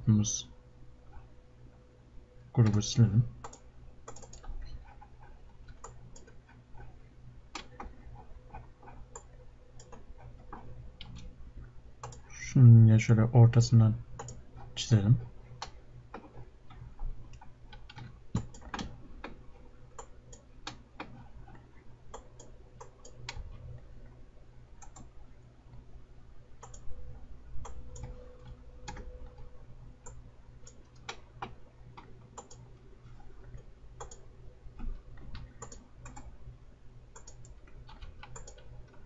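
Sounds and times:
low steady hum: 0.0s - 39.0s
mouse and keyboard clicks: 2.6s - 6.9s, 17.3s - 19.4s, 32.4s - 32.6s, 37.2s - 39.0s.

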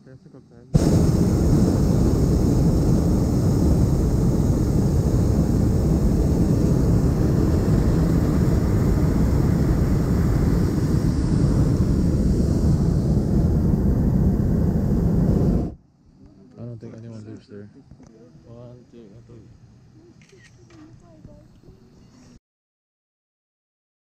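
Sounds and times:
propane burner blasting: 0.8s - 15.8s.

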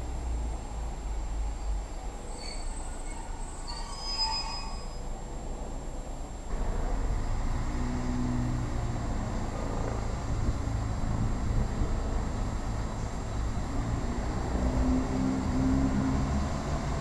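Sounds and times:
train approaching with low rumble: 0.0s - 17.0s
faint high squeals: 2.2s - 5.2s
diesel engines humming: 5.1s - 17.0s.

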